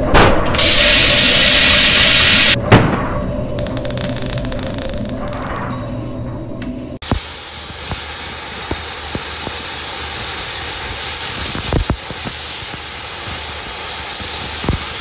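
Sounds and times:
cutting torch hissing: 0.6 - 2.6, 7.0 - 15.0
torch popping: 3.6 - 5.6, 11.3 - 13.4.

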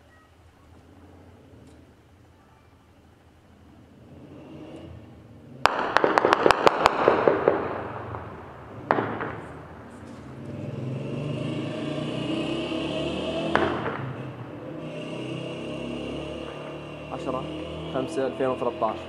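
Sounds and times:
low steady rumble: 0.0 - 11.2.

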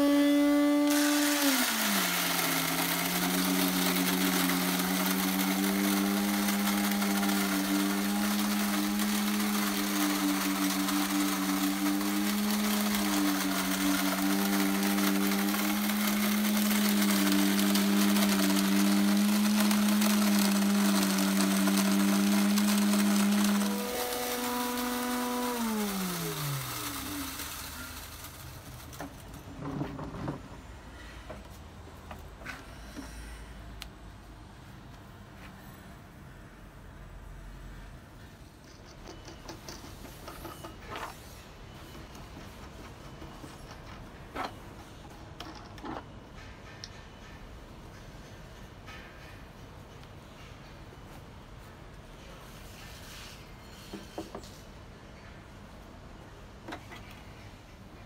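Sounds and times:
grain mill motor: 0.0 - 30.5.

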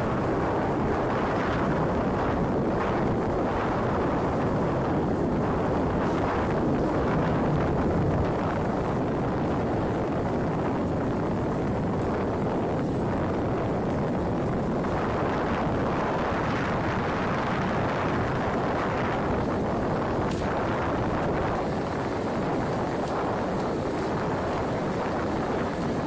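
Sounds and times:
jet engines rumbling: 0.0 - 26.0.

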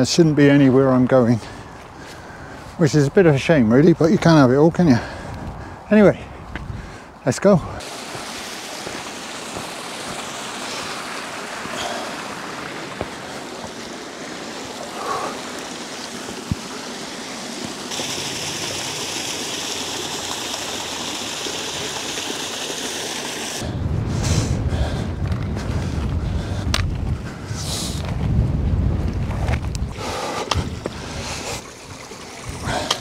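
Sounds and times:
wind rumble on microphone: 5.0 - 7.8, 23.6 - 33.0
stream running over rocks: 7.3 - 23.7, 29.7 - 33.0.

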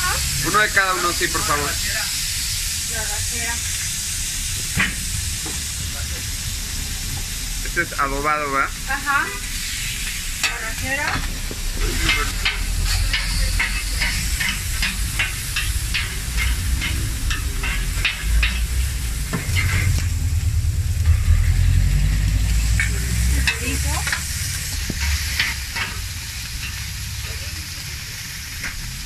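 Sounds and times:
meat sizzling: 0.0 - 29.0
low rumble: 10.3 - 27.4.

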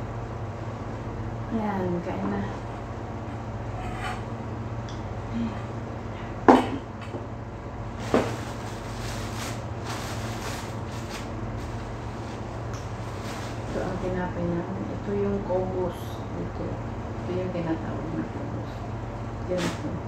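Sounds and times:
steady low hum: 0.0 - 20.0
plastic bag rustling: 7.9 - 14.2.

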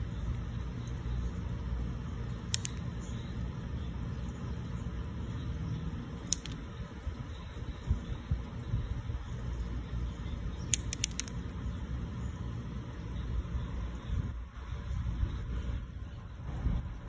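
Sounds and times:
short sharp clicks: 2.5 - 2.9, 6.2 - 6.7, 10.6 - 11.4
wind buffeting microphone: 6.6 - 9.6, 13.9 - 17.0.

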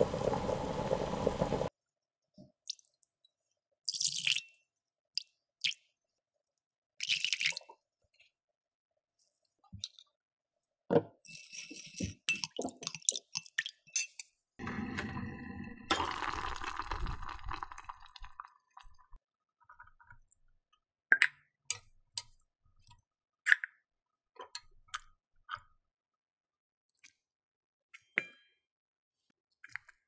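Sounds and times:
metal spoon clinking on glass: 11.3 - 14.3
water pouring into bowl: 14.6 - 19.2.

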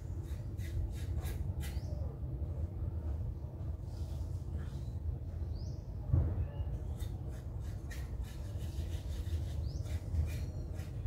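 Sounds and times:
soft thump: 6.1 - 6.4.

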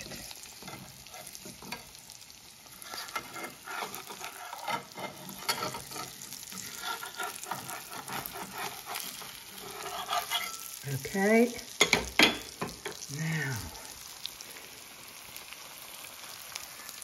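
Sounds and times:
metal spatula scraping a pan: 0.0 - 2.0, 2.6 - 13.0
eggs sizzling in a pan: 0.0 - 17.0.

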